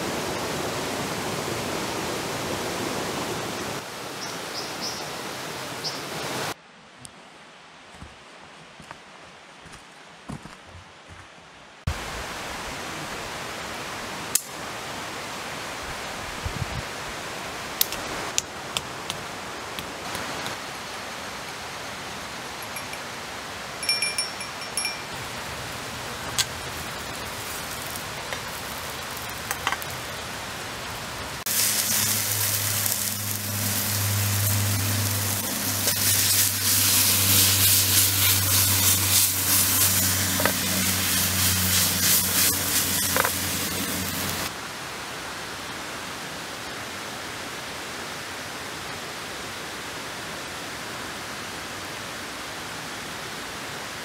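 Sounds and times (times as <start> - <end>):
fire crackling: 24.7 - 44.5
food sizzling in a pan: 26.6 - 30.3, 31.5 - 44.5.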